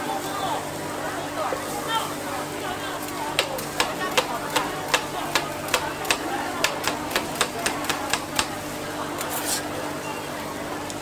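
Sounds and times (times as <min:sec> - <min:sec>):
metal scraper chopping on griddle: 0:03.4 - 0:08.6.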